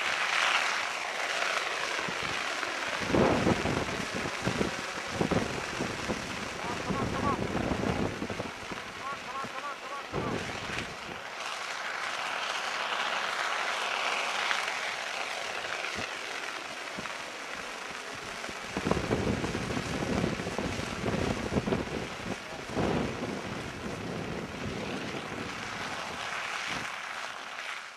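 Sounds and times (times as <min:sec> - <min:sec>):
kites whooshing through air: 0:00.0 - 0:27.9
wind buffeting microphone: 0:02.0 - 0:09.5, 0:10.1 - 0:11.2, 0:18.1 - 0:27.0.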